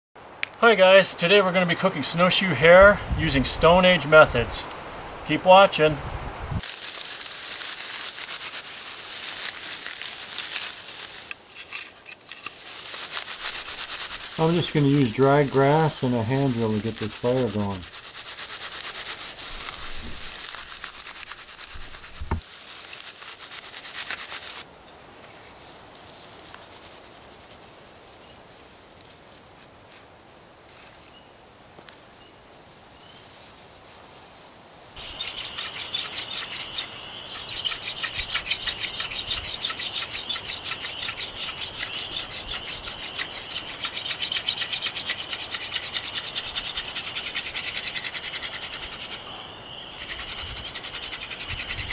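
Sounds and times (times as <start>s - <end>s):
rustling: 6.4s - 51.9s
handling sounds: 6.6s - 24.6s
wood on wood rubbing with squeak: 9.4s - 22.4s, 35.0s - 49.3s, 49.9s - 51.9s.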